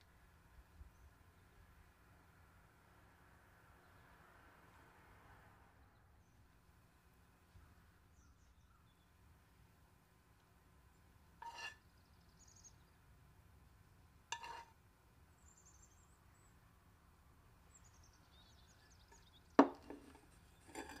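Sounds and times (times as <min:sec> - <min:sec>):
faint bird chirps: 0:07.5 - 0:09.2, 0:11.5 - 0:13.0
sharp knocks: 0:19.6 - 0:20.1.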